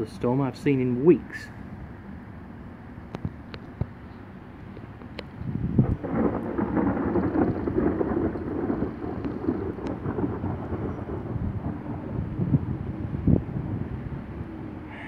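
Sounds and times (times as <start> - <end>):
thunder rumbling: 5.5 - 15.0.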